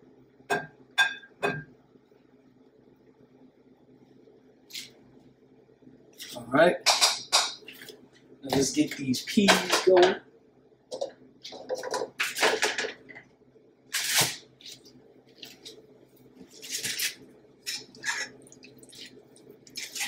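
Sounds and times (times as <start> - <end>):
spoon scraping saucepan: 17.7 - 18.4
liquid drips and splashes: 18.4 - 20.0.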